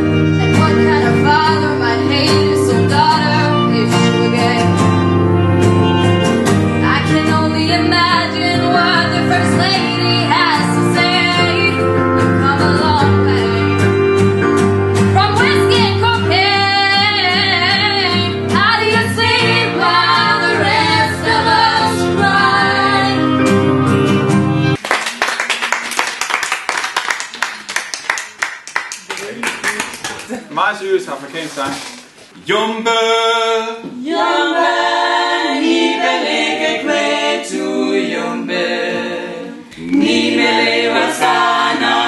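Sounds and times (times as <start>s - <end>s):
acoustic guitar: 0.0s - 24.8s
girls singing together: 0.6s - 4.8s, 6.9s - 11.8s, 15.2s - 23.4s, 33.8s - 42.0s
small group applauding: 24.8s - 30.8s.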